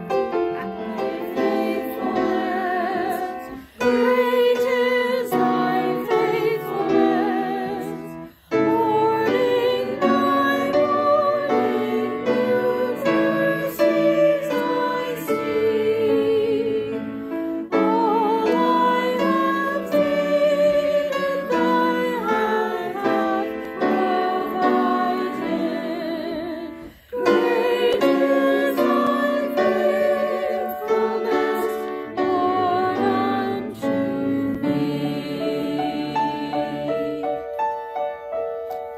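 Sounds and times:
choir singing a hymn: 0.0 - 38.1.

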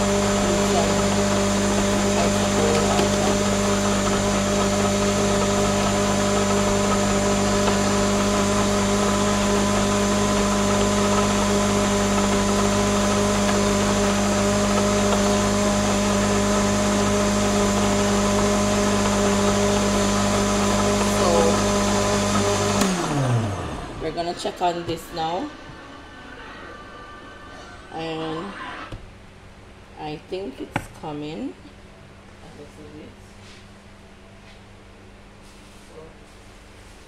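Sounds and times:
blender running: 0.0 - 29.0.

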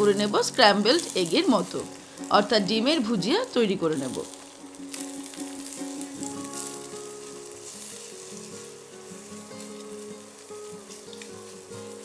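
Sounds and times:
eggs sizzling in hot oil: 0.0 - 12.0
soft background music: 0.0 - 12.0
spatula stirring in a wok: 3.9 - 12.0.

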